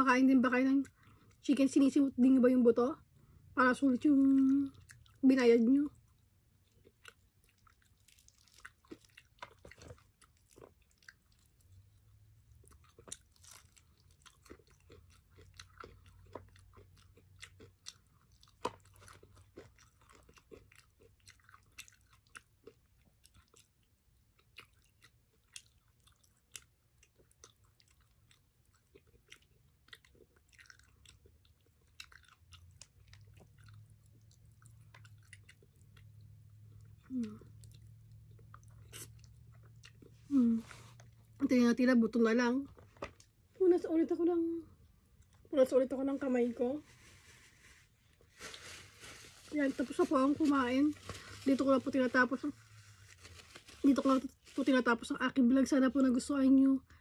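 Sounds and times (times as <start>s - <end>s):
chewing crispy chicken: 4.0s - 41.5s.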